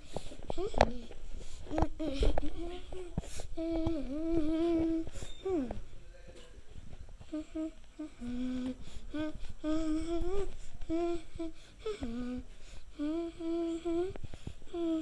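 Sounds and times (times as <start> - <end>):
person humming: 7.2 - 15.0.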